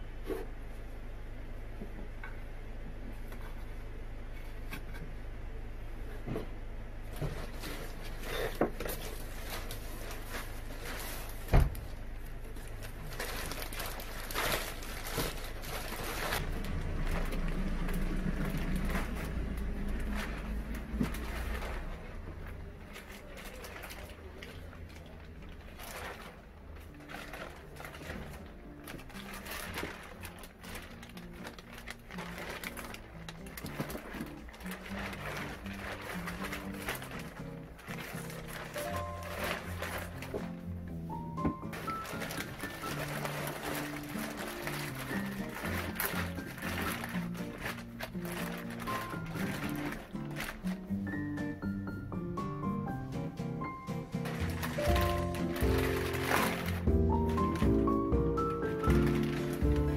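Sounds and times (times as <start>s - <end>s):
steady low hum: 0.0s - 41.9s
plastic bag rustling: 7.1s - 51.8s, 52.6s - 59.9s.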